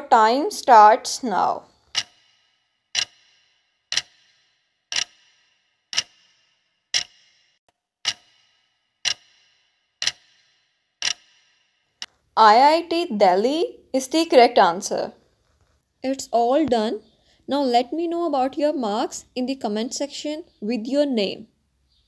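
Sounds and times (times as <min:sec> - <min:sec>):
clock ticking: 0:01.8 - 0:07.4, 0:08.0 - 0:12.1.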